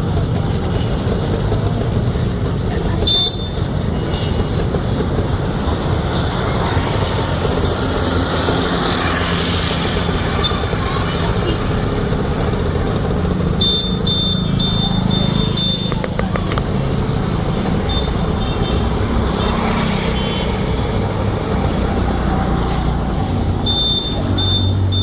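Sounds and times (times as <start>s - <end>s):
vehicle engine and road noise: 0.0s - 25.0s
short high electronic beeps: 13.7s - 16.0s, 23.7s - 25.0s.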